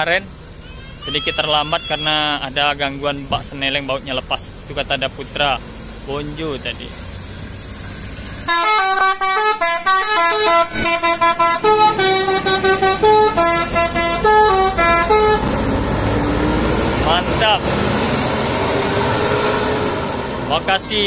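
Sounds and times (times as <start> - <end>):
bus engine running: 0.0 - 21.0
bus horn playing a fast tune: 8.5 - 15.6.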